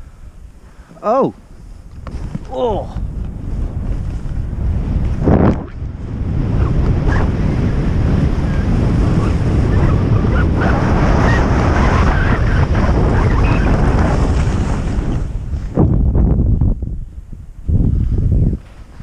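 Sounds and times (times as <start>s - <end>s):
wind buffeting microphone: 1.4s - 19.0s
skis sliding over snow: 10.7s - 15.8s.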